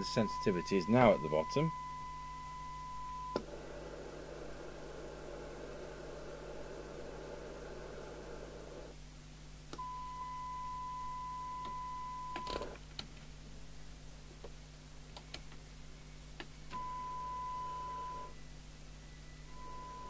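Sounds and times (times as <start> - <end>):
steady test tone: 0.0 - 3.4
radio receiver hiss: 3.3 - 9.0.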